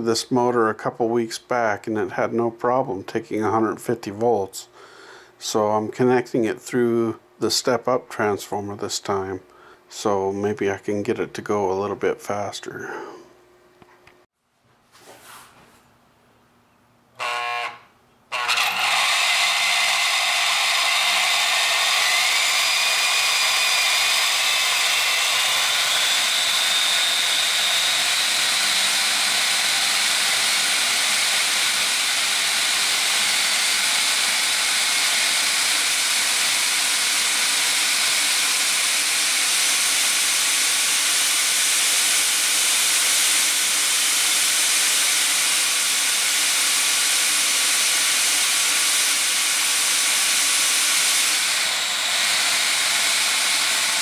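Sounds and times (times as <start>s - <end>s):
vacuum cleaner motor whining: 17.2s - 54.0s.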